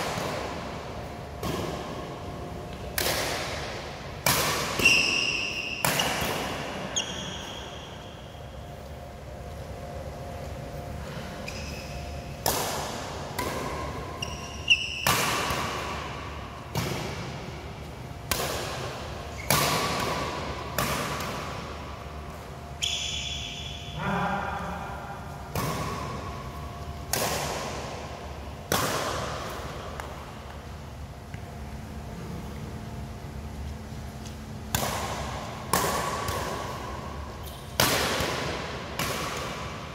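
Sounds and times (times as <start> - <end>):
badminton racket hitting shuttlecock: 2.8 - 7.4, 11.5 - 17.5, 18.2 - 22.1, 25.4 - 30.2, 34.7 - 39.9.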